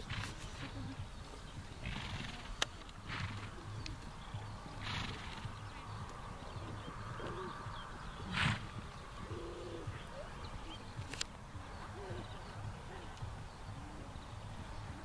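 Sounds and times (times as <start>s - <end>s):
muffled hoofbeats on sand: 0.0s - 15.0s
horse snorting: 1.8s - 3.8s, 4.8s - 5.6s, 8.2s - 9.9s.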